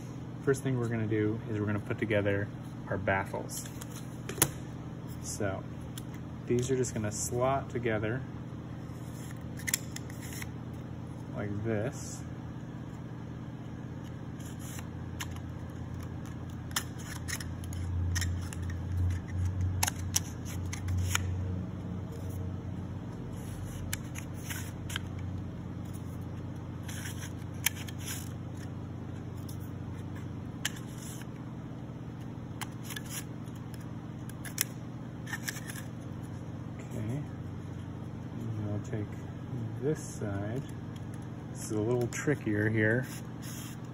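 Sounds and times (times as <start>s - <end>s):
steady low hum: 0.0s - 43.9s.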